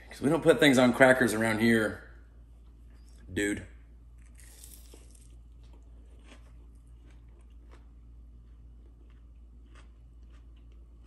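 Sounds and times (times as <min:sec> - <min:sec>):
crunchy bite of toast: 0:04.1 - 0:11.0
man chewing with crunches: 0:04.1 - 0:11.0.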